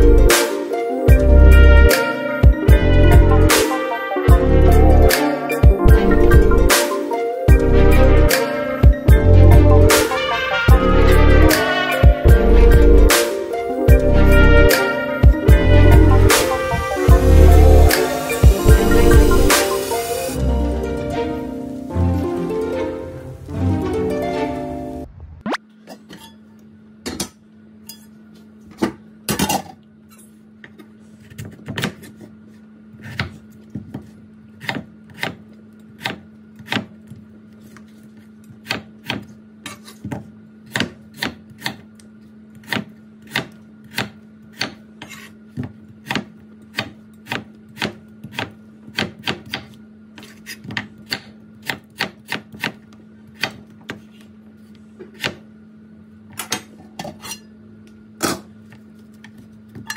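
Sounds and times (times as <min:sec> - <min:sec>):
knife chopping on wooden board: 0:33.0 - 0:35.4, 0:36.0 - 0:36.9, 0:38.6 - 0:41.8, 0:42.6 - 0:52.8.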